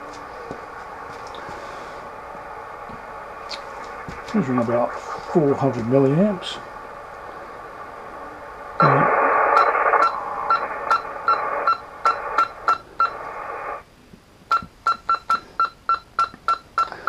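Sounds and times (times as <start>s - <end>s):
speaker hiss: 0.0s - 14.8s
short beeps with relay clicks: 14.5s - 17.0s.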